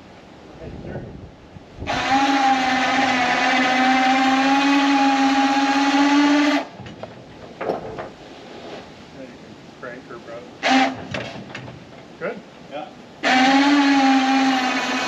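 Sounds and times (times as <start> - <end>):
electric winch motor whining: 1.9 - 6.7, 13.2 - 15.0.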